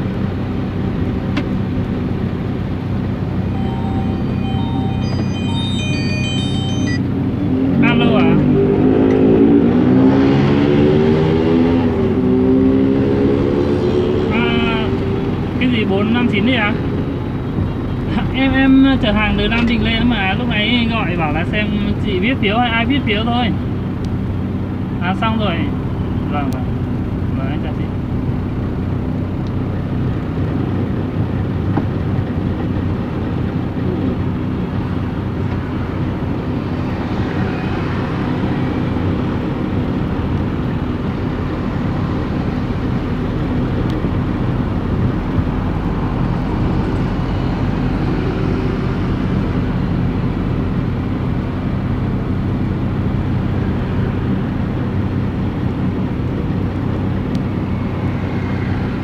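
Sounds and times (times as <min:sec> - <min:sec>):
vehicle engine hum: 0:00.0 - 0:59.0.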